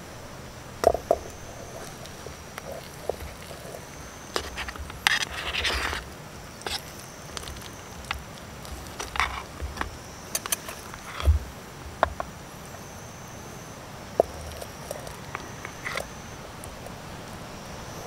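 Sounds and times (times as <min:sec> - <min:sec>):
spoon scraping metal tin: 0:01.2 - 0:06.0, 0:06.6 - 0:11.3, 0:14.2 - 0:16.2.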